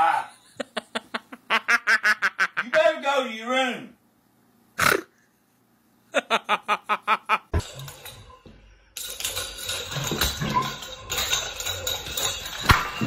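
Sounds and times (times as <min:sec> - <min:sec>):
person laughing: 0:00.1 - 0:02.8, 0:06.1 - 0:07.6.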